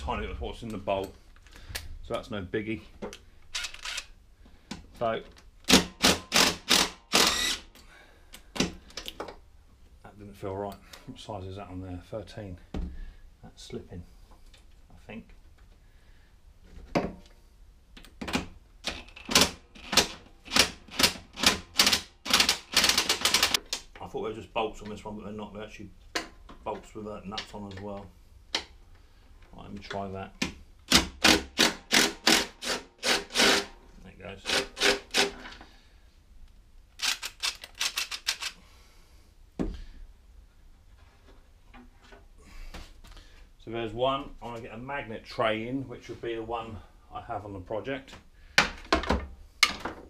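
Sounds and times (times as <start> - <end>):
cordless driver bursts: 3.6 - 4.1, 5.7 - 7.7, 30.9 - 33.7, 34.5 - 35.4
cordless driver running: 3.6 - 4.1, 6.1 - 7.6
sharp clicks: 37.0 - 38.6.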